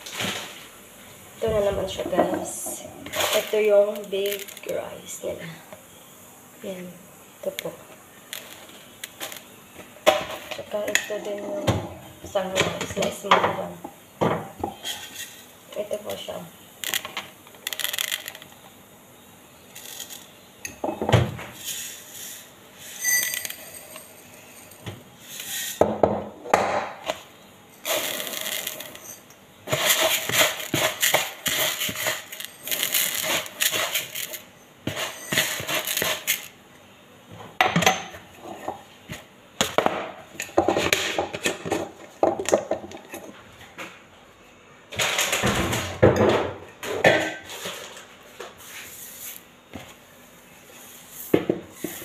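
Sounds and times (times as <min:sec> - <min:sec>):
rice grains pouring into jar: 0:16.8 - 0:18.6, 0:27.8 - 0:36.5
ringing glass clink: 0:23.0 - 0:24.7
glass clinking on glass: 0:23.0 - 0:24.8.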